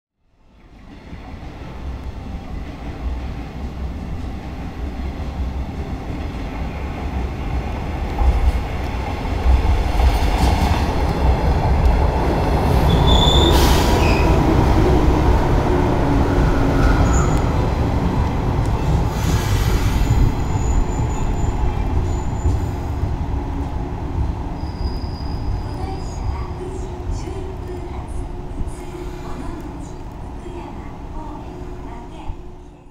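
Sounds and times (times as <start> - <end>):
high-pitched squeals: 24.5 - 26.2.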